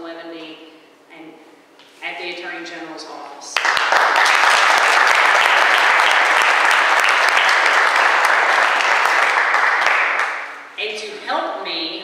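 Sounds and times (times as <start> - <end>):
audience applauding: 3.6 - 10.6.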